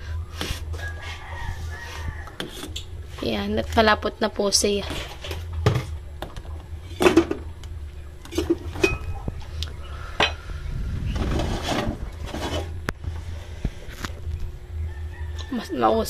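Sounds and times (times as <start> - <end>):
metal ladle scraping a pot: 11.1 - 12.8.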